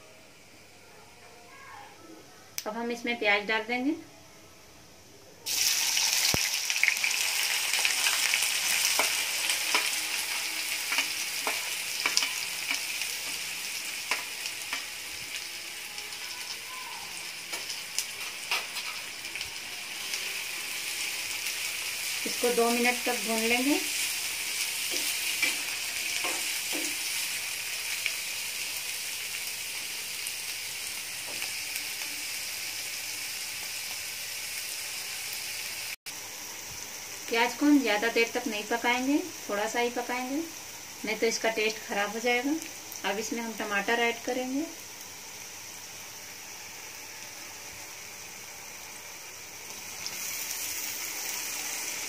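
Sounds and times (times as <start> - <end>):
onions sizzling in hot oil: 5.4 - 52.0.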